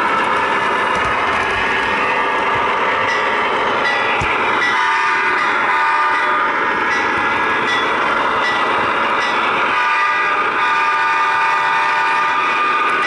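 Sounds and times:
diesel locomotive engine sound: 0.0 - 13.0
locomotive horn: 4.7 - 6.5, 9.7 - 12.9.

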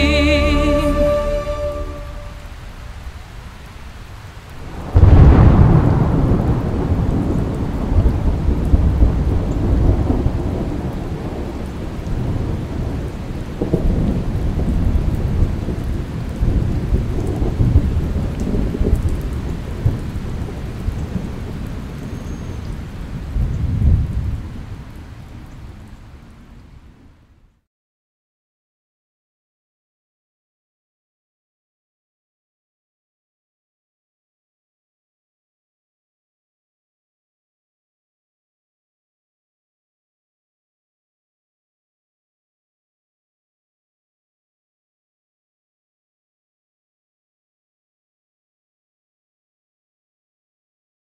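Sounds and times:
steady rain: 0.0 - 27.7
rolling thunder: 4.6 - 24.9
thunderclap: 4.7 - 22.2, 23.2 - 24.6.

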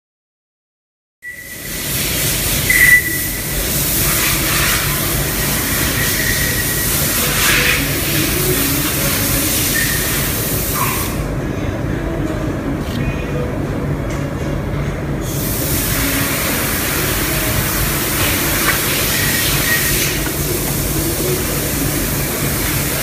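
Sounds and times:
loud hiss: 1.4 - 11.2, 15.2 - 23.0
low machine hum: 11.2 - 23.0.

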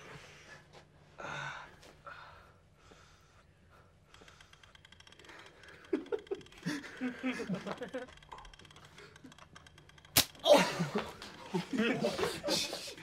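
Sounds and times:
fast faint clicks: 4.0 - 7.0, 7.6 - 10.4.

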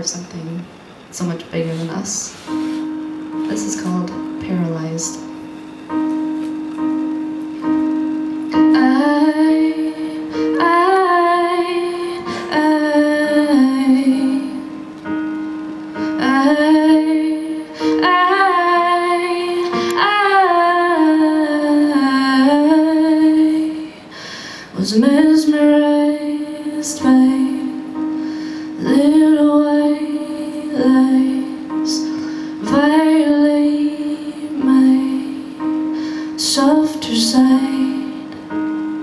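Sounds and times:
instrumental accompaniment: 0.7 - 39.0
woman singing: 3.4 - 5.3, 8.5 - 14.9, 16.0 - 24.1, 24.7 - 38.6.

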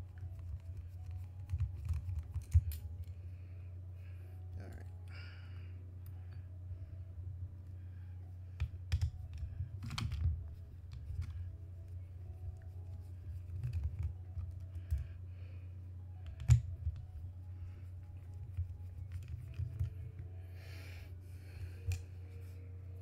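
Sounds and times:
steady low hum: 0.0 - 23.0
clicks and taps of small metal parts: 1.5 - 3.2.

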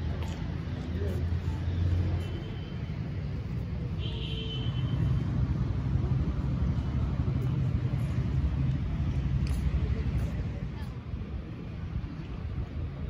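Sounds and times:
low outdoor rumble: 5.0 - 13.0.

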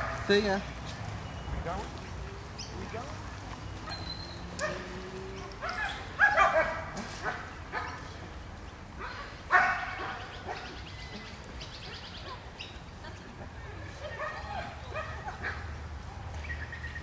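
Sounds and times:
dogs barking: 0.0 - 0.4, 3.8 - 8.1, 9.0 - 10.9, 13.9 - 15.8.

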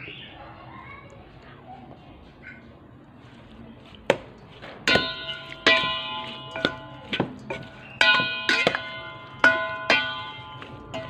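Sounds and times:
metal spoon knocking steel bowl: 4.9 - 11.0.

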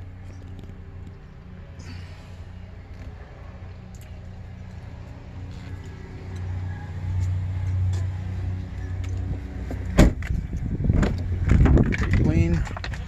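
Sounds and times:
car door shutting: 9.7 - 10.3.

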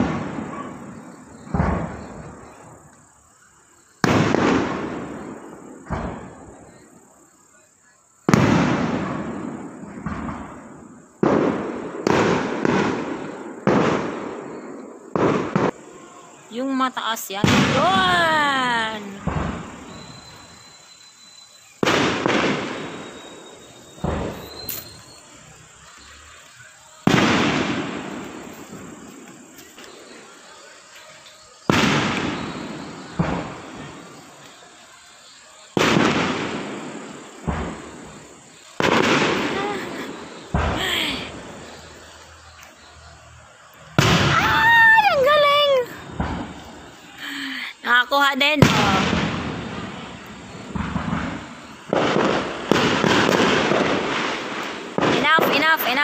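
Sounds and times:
firework shells bursting: 0.0 - 3.1, 4.0 - 7.0, 8.2 - 16.0, 16.7 - 56.0
firework shell bangs: 44.0 - 44.7.

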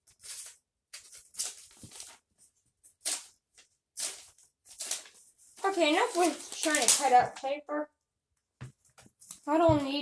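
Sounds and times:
paper scraping on a puzzle cube: 0.0 - 2.2, 4.0 - 7.0.

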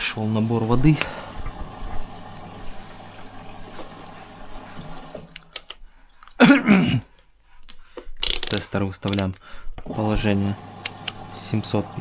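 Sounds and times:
washing machine filling with water: 0.0 - 5.6, 9.9 - 12.0.

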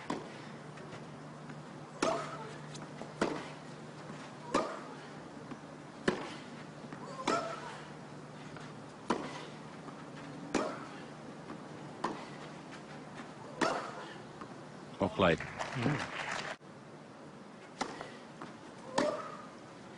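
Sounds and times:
tennis ball hit by rackets: 2.0 - 3.6, 6.0 - 7.7, 9.0 - 9.4, 10.5 - 10.9, 18.9 - 19.5.

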